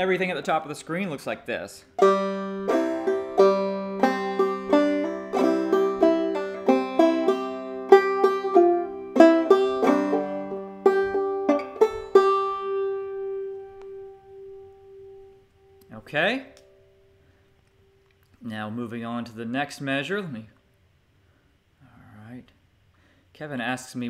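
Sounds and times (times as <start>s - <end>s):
banjo playing: 2.0s - 15.4s.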